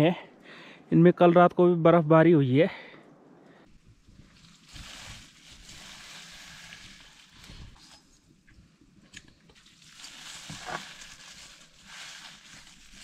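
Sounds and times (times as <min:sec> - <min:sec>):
hot water hissing: 0:03.7 - 0:08.2, 0:09.6 - 0:13.0.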